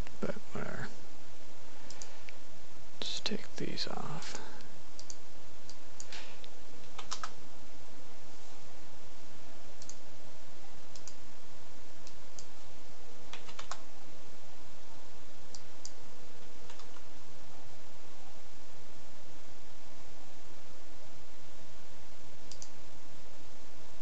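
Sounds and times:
steady background hiss: 0.0s - 24.0s
mouse clicks: 1.9s - 2.4s, 5.0s - 7.4s, 9.8s - 10.0s, 10.9s - 11.2s, 22.5s - 22.8s
keyboard keystrokes: 6.9s - 7.4s, 13.3s - 13.8s.

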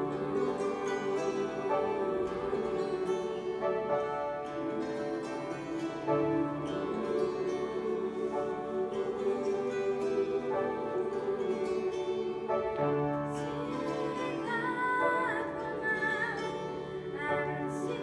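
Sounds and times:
choir singing sustained chords: 0.0s - 18.0s
plucked harp: 0.0s - 18.0s
high voice singing with vibrato: 13.4s - 18.0s.

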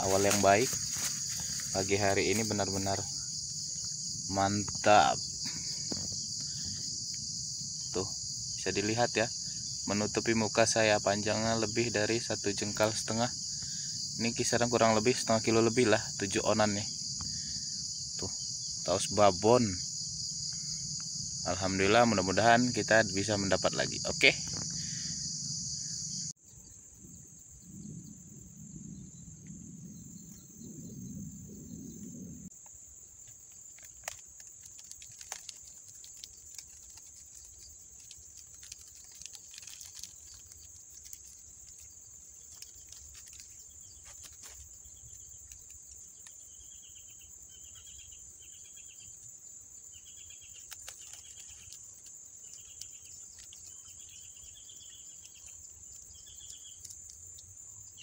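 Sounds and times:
insects droning: 0.0s - 58.0s
dry sticks clicking and crackling: 33.2s - 46.4s, 50.5s - 53.9s, 55.2s - 57.5s.

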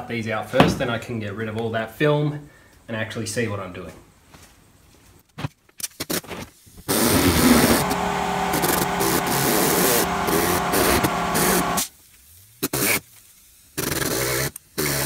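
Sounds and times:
rotary tool cutting plastic: 6.9s - 11.9s.

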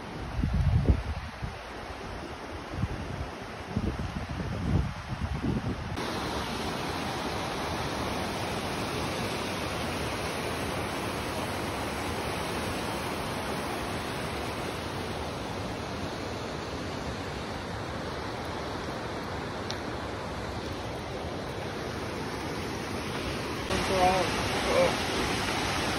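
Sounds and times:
waterfall roaring: 6.0s - 25.9s.

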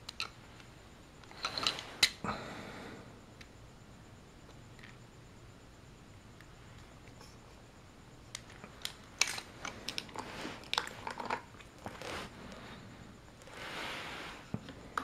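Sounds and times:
soft scraping rustle: 9.4s - 15.0s.

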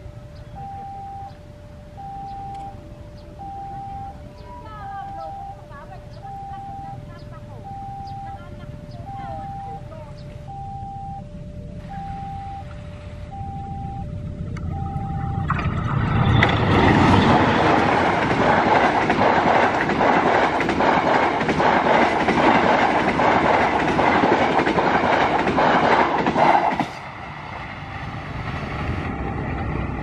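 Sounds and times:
two-note crossing alarm: 0.0s - 19.7s
train rushing past: 14.2s - 30.0s
wheels clacking over rail joints: 15.5s - 27.8s.

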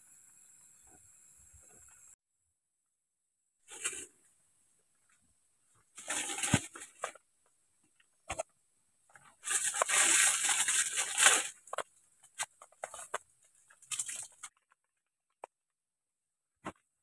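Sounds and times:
plastic packets crinkling: 6.0s - 7.2s, 9.2s - 14.7s.

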